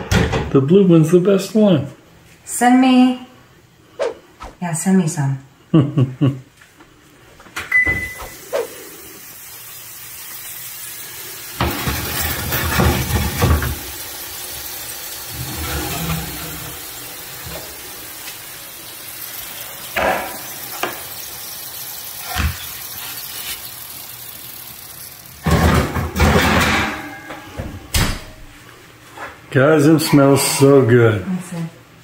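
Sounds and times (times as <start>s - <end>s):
steady hiss: 8.1s - 26.3s.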